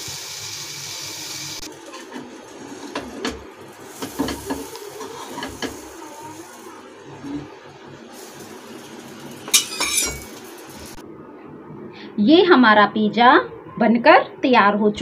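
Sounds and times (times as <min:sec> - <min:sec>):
spatula scraping a frying pan: 0:03.9 - 0:05.8.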